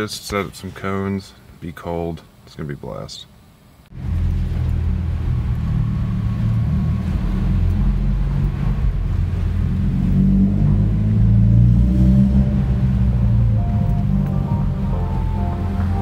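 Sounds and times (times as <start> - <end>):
car engine low rumble: 3.9 - 16.0.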